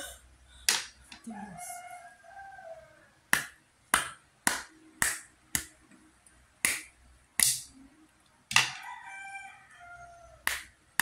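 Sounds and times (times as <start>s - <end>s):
rooster crowing: 1.2s - 3.2s, 8.6s - 10.4s.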